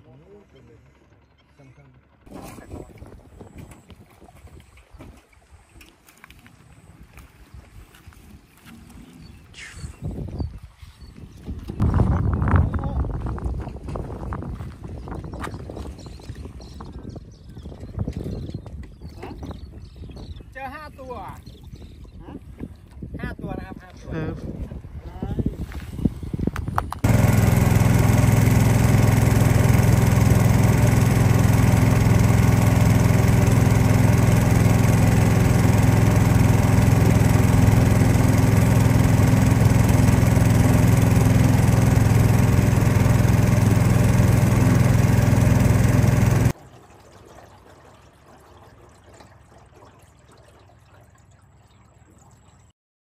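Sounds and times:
boat engine running: 0.0 - 7.7, 27.0 - 52.7.

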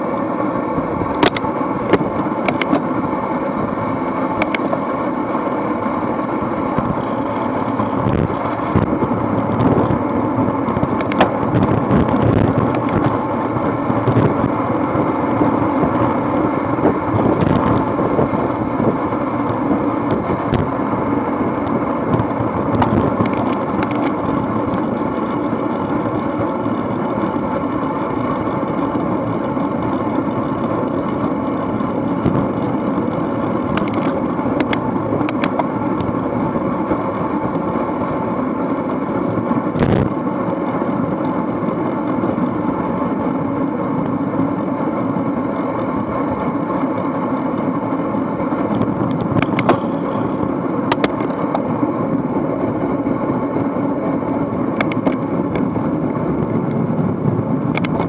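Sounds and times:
bicycle tyre noise: 0.0 - 58.0
wind on microphone: 6.7 - 25.2, 31.9 - 36.5, 39.4 - 40.2, 48.4 - 58.0.

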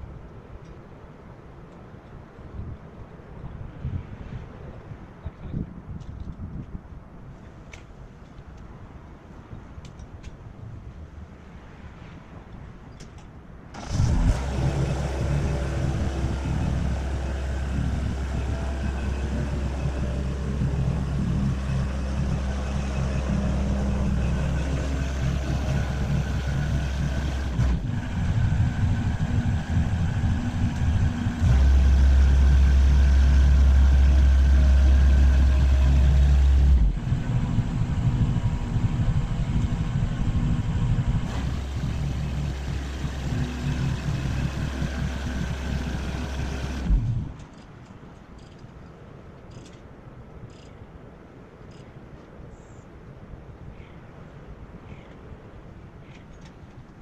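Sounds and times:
boom lift engine running: 13.8 - 47.4.

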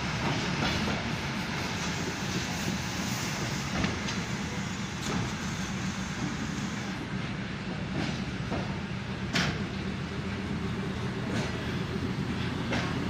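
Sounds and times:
wheels rumbling on rails: 1.8 - 13.0.

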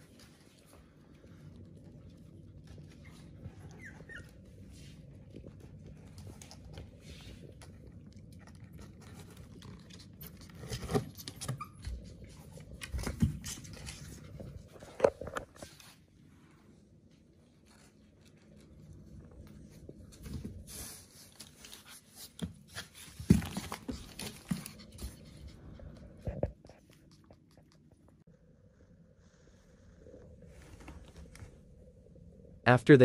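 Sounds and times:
puppies whimpering and yipping: 2.7 - 4.8, 11.2 - 12.3.

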